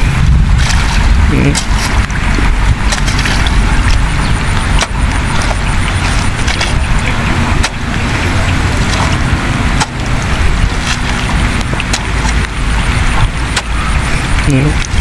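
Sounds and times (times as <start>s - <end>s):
wind rumble on microphone: 0.0s - 15.0s
hoe chopping into wet mud: 2.9s - 3.5s.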